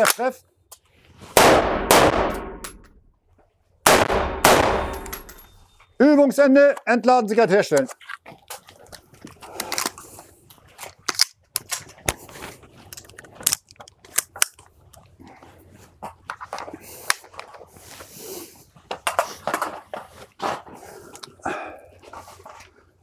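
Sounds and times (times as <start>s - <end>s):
metallic rifle clicks and clacks: 4.6s - 5.8s, 10.7s - 12.2s, 12.8s - 15.0s.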